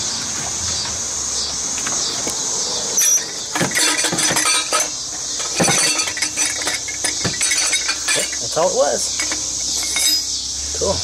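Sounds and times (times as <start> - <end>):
metal clinking and knocking: 2.9 - 10.4.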